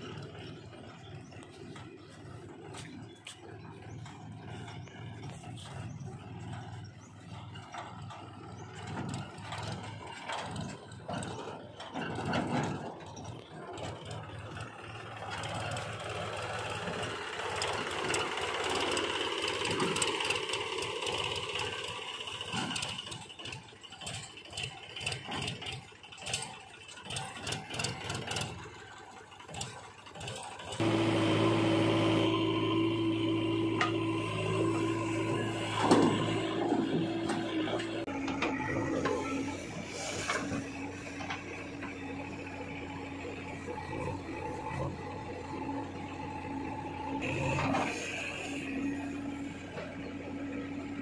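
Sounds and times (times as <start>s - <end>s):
trolley clicks and rattles: 0.0s - 31.4s
tractor diesel engine running: 0.0s - 51.0s.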